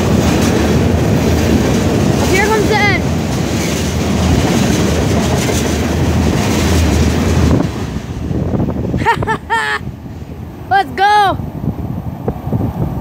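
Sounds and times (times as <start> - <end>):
train wheel clatter: 0.0 - 8.8
freight train rumbling past: 0.0 - 13.0.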